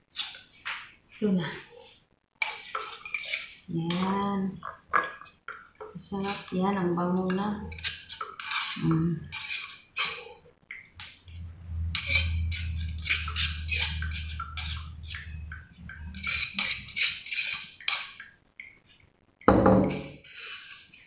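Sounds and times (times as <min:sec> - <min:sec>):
scraping food from mortar: 0:00.0 - 0:00.8, 0:01.8 - 0:05.2, 0:07.3 - 0:10.4, 0:11.0 - 0:18.4, 0:19.9 - 0:21.0
low hum: 0:11.2 - 0:16.9.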